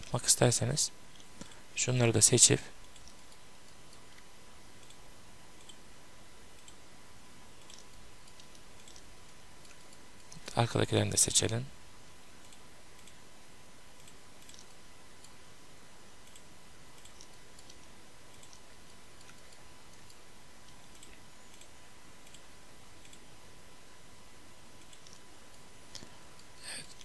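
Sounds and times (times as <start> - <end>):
background hiss: 0.0 - 27.0
faint constant tone: 0.0 - 27.0
faint computer mouse clicks: 7.6 - 10.6, 14.0 - 15.4, 16.2 - 22.4, 24.8 - 27.0.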